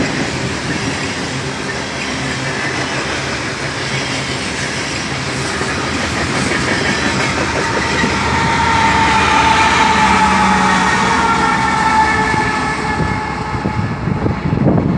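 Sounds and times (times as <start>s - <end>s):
train wheels clicking over rail joints: 0.0s - 10.8s
locomotive high whine: 0.0s - 14.9s.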